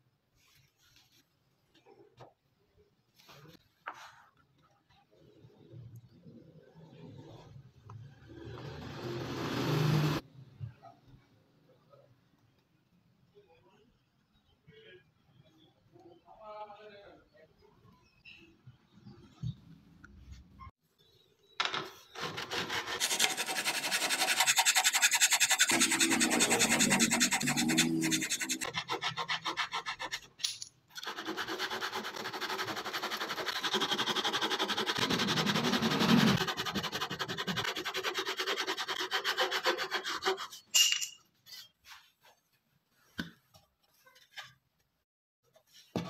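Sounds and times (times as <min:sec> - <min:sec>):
hand saw cutting wood: 0:22.2 - 0:30.3, 0:31.0 - 0:40.6.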